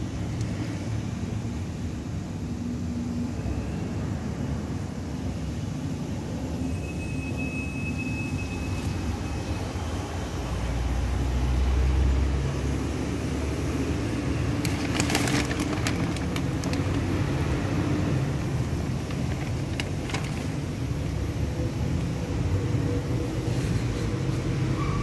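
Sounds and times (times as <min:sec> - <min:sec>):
faint high whine: 0:01.5 - 0:10.9.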